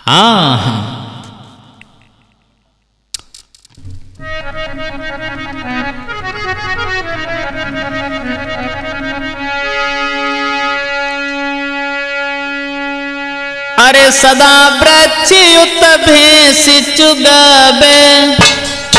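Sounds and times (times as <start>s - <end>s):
harmonium playing: 3.8s - 18.9s.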